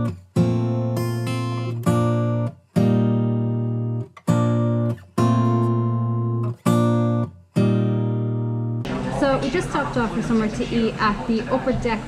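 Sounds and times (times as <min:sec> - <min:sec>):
strummed acoustic guitar chords: 0:00.0 - 0:09.6.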